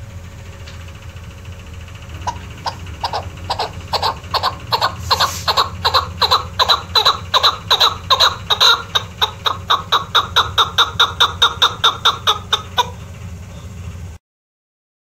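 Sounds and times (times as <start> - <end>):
partridge chuck calls: 2.1 - 13.8.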